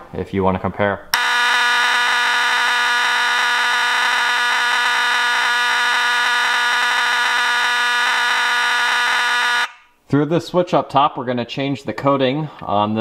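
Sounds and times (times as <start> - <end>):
fire alarm horn: 1.2 - 9.9.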